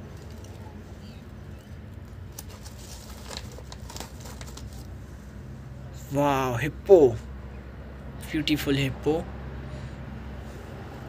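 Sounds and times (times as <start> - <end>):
plastic bag crinkling: 2.2 - 4.9.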